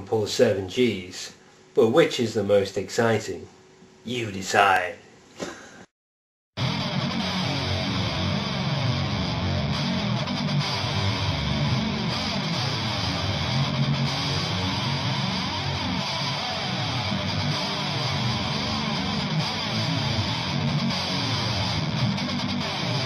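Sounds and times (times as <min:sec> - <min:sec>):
instrumental music with strummed guitar: 0:06.6 - 0:23.0.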